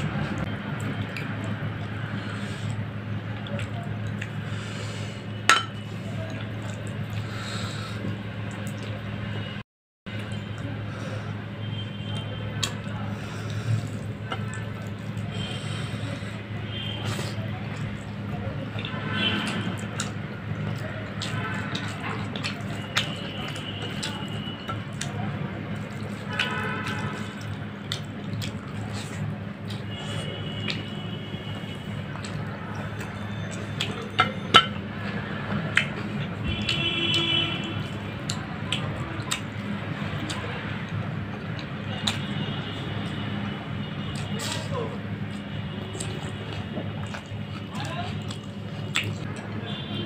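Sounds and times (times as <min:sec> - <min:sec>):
chewing mouth sounds: 0:00.0 - 0:09.1, 0:11.9 - 0:49.6
wet squishing of food mixed by hand: 0:00.0 - 0:50.0
ceramic bowl clinking on table: 0:05.5 - 0:05.8.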